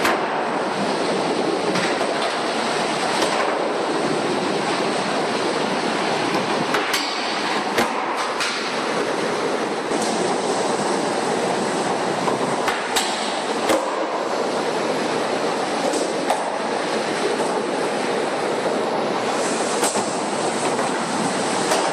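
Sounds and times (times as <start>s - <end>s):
skateboard clacks: 6.3s - 8.9s.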